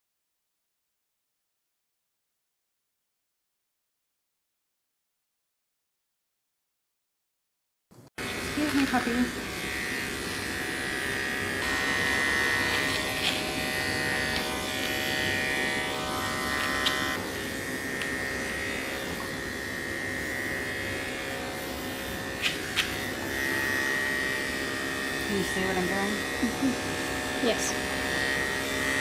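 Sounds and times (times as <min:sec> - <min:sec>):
electric clippers buzzing: 0:08.2 - 0:29.0.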